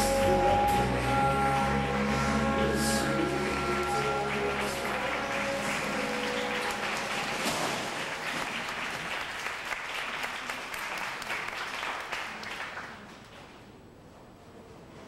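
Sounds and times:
music: 0.0s - 8.0s
audience applauding: 0.9s - 13.5s.

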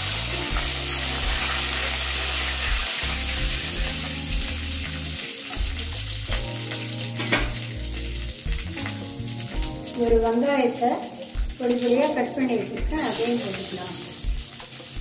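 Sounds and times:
spices sizzling in hot oil: 0.0s - 15.0s.

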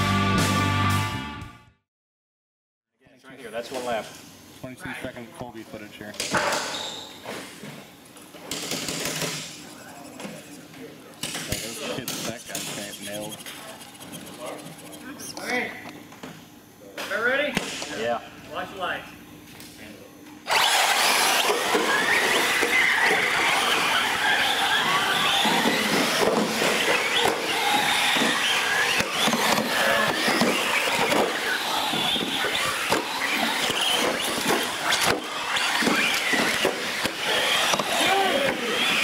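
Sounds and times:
small motors whining: 8.5s - 16.7s, 20.4s - 39.0s
tyres squealing: 21.2s - 39.0s.

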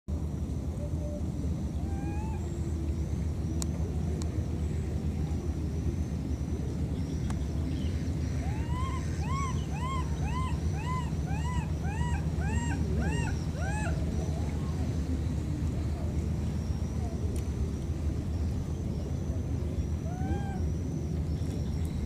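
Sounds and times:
steady low rumble: 0.1s - 22.0s
baby monkey crying: 8.4s - 14.0s.

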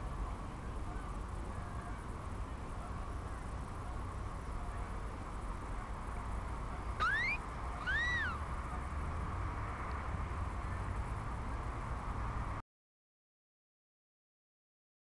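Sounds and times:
low rumble and hiss: 0.0s - 12.6s
rising animal call: 7.0s - 8.4s.

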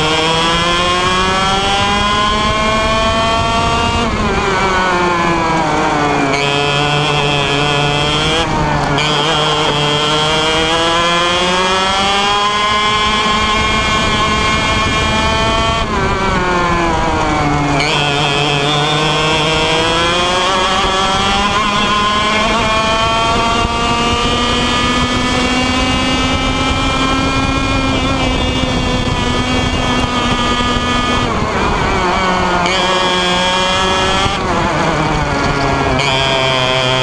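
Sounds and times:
kart engine revving: 0.0s - 37.0s.

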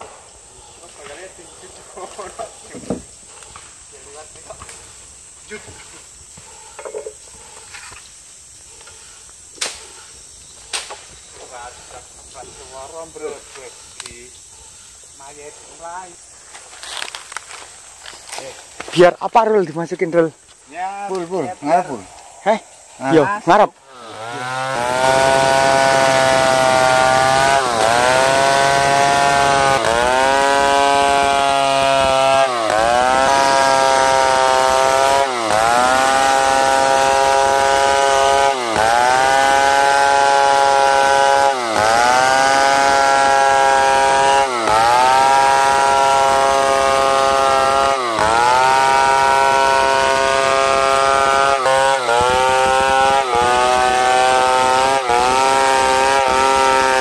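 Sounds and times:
chainsaw cutting log: 23.8s - 57.0s.

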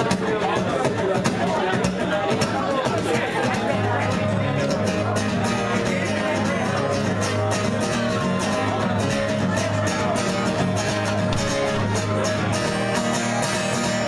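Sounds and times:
acoustic guitar strumming: 0.0s - 14.0s.

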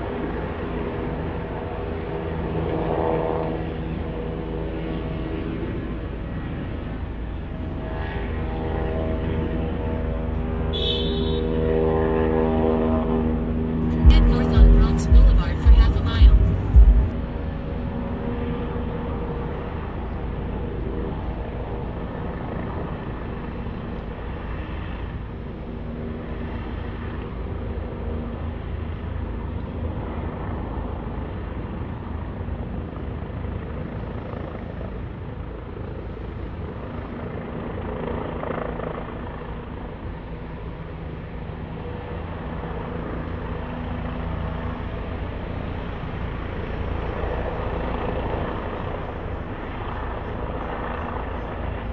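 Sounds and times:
car road and engine noise: 15.4s - 18.2s.

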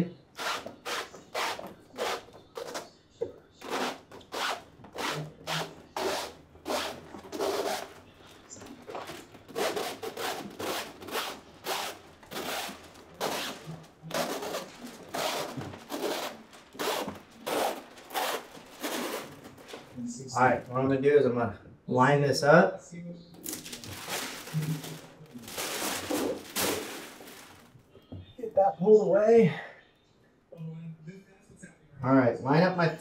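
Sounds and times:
plastic film rustling on wet glass: 0.4s - 20.8s, 23.4s - 28.1s.

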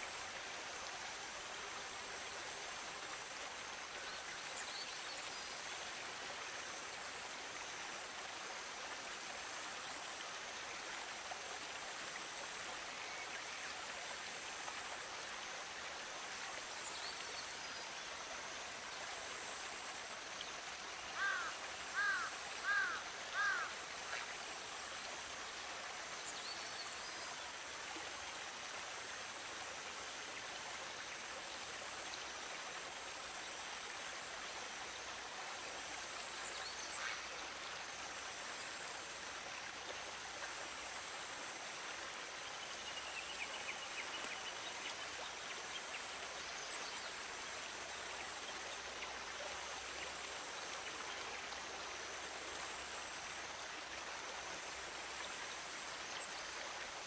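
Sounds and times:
stream babbling over gravel: 21.0s - 27.3s.

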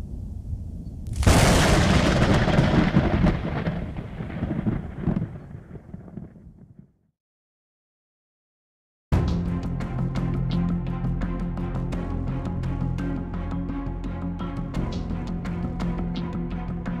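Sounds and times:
thunder crack and rumble: 0.3s - 6.9s.

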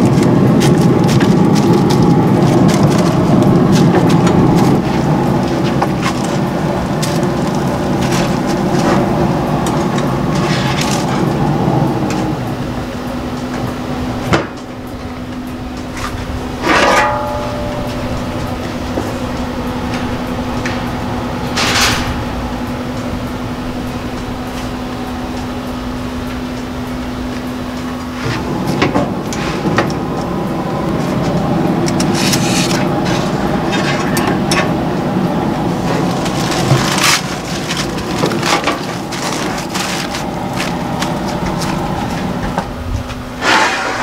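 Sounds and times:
aluminium foil crinkling: 0.0s - 11.4s, 35.4s - 42.4s
grill fan humming: 0.0s - 44.0s
loud rushing noise: 0.0s - 44.0s
brief scraping noises: 43.4s - 44.0s.

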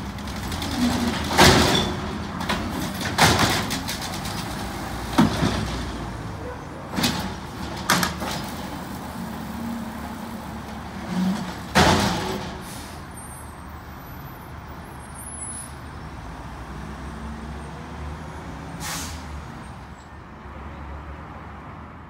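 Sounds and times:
air brake hiss: 12.6s - 13.2s, 18.8s - 19.4s.

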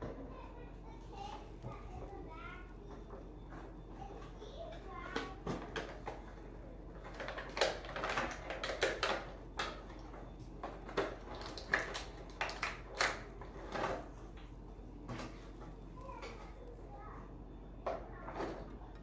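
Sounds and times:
plastic packaging clicks and crinkles: 7.0s - 14.5s.

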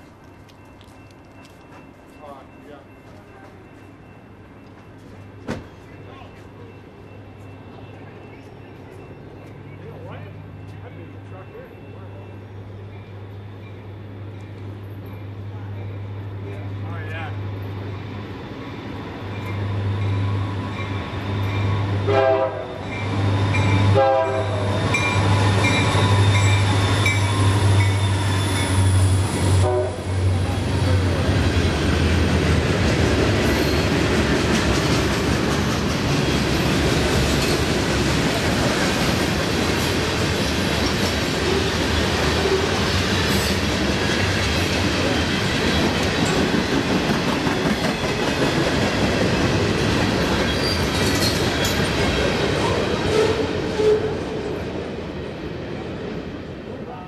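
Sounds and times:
locomotive engine drone: 0.0s - 48.0s
train horn blasts: 22.0s - 22.8s, 23.8s - 24.7s, 29.5s - 30.3s.

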